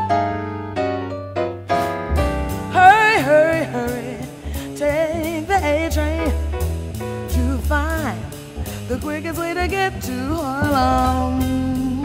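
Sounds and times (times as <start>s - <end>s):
bass and drums with cymbals: 1.7s - 12.0s
woman singing with vibrato: 2.7s - 6.6s, 7.3s - 12.0s.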